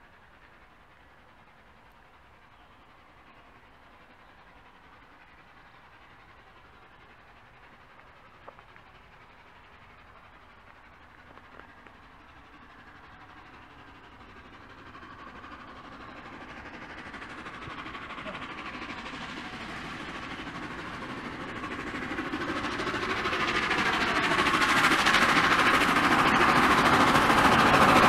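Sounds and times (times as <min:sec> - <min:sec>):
steam locomotive approaching: 0:00.0 - 0:28.0.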